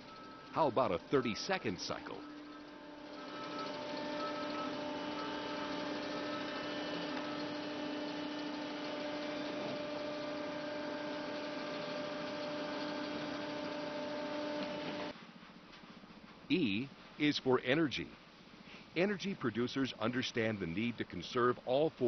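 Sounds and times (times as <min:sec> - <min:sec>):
crane machinery humming: 0:00.0 - 0:15.1.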